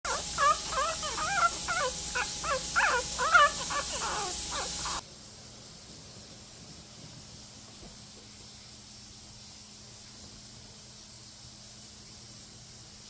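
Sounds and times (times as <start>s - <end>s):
puppy squealing: 0.1s - 5.0s.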